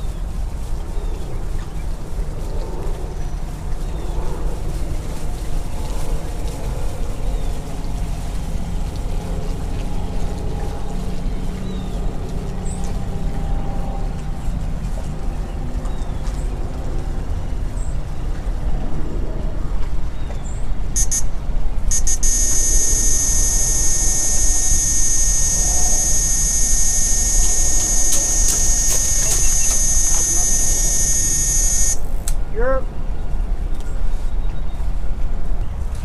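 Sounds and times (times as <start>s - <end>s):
high electronic tone: 21.0s - 32.3s
boat motor running: 21.9s - 32.2s.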